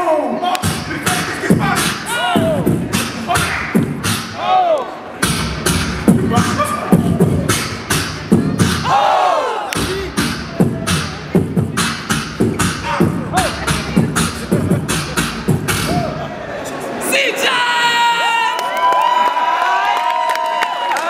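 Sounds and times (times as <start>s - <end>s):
beatboxing kick and snare: 0.5s - 4.4s, 5.2s - 9.0s, 9.7s - 16.2s
vocal hissing hi-hat: 0.6s - 4.4s, 9.8s - 16.2s.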